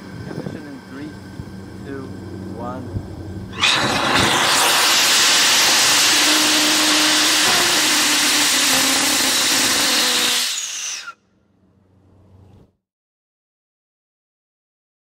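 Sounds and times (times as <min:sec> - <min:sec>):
rocket motor rushing roar: 0:00.0 - 0:11.2.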